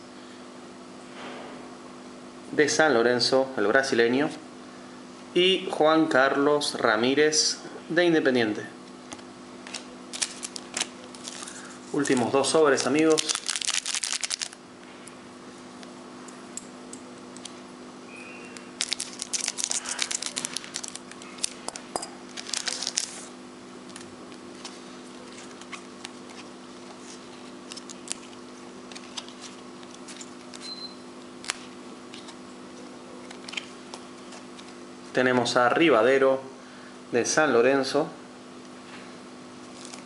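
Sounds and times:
cards clicking: 9.1s - 14.6s
paper wrapper tearing: 9.6s - 14.6s, 18.8s - 23.3s, 25.2s - 30.7s, 39.7s - 40.0s.

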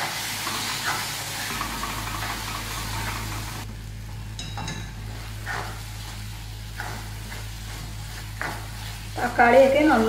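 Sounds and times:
low frying sizzle: 0.0s - 10.0s
spatula scraping pan: 5.1s - 10.0s.

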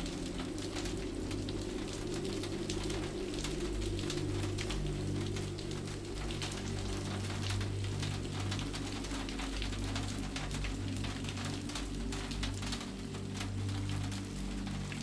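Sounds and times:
rain drops ticking: 0.0s - 15.0s
soft ambient music: 0.0s - 15.0s.

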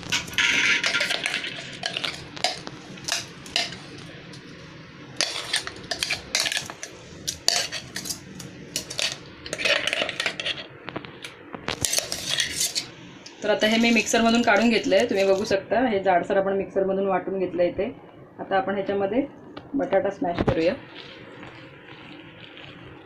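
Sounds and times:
metal spoon scraping grinder jar: 5.2s - 6.7s, 7.5s - 8.2s, 11.8s - 12.9s.

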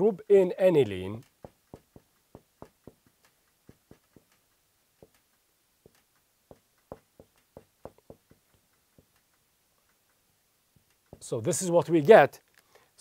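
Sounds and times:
marker pen tapping on whiteboard: 1.2s - 9.2s, 10.8s - 11.3s.

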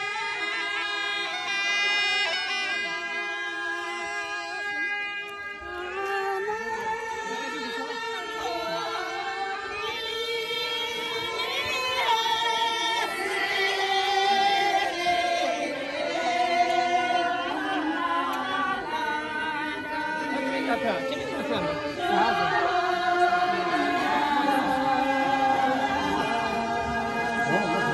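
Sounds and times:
women singing in unison: 8.1s - 27.9s.

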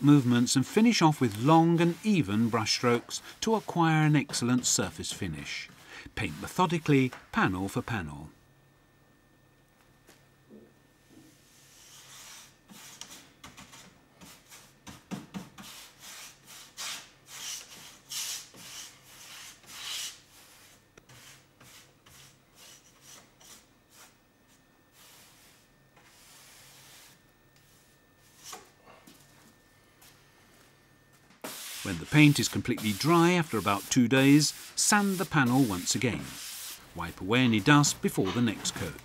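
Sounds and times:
paintbrush rubbing on wood: 0.0s - 6.7s, 25.0s - 27.2s, 31.5s - 39.0s.

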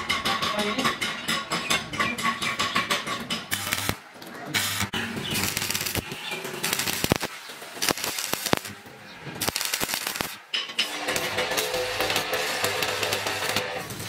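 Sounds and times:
arc welding crackling: 3.5s - 14.0s.

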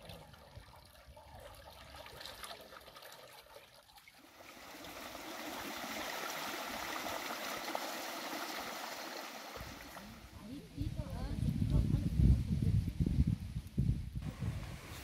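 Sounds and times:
stream running water: 0.0s - 11.3s.

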